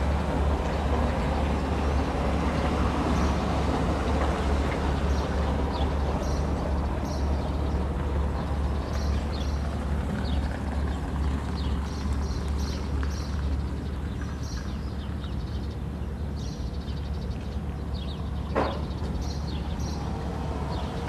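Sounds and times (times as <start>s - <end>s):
ship engines humming: 0.0s - 16.4s
small birds chirping: 1.9s - 21.0s.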